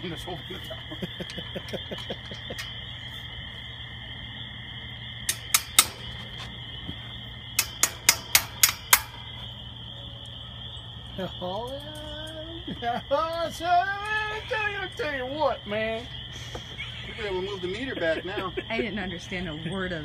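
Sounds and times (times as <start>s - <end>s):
insects chorus: 0.0s - 20.0s
sharp knocks on steel: 5.3s - 6.4s, 7.6s - 9.4s.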